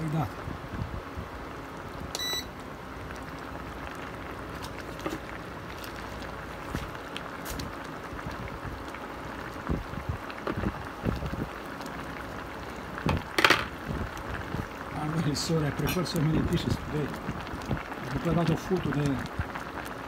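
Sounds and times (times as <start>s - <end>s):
sauce bubbling in a pot: 0.1s - 20.0s
short electronic beep: 2.2s - 2.5s.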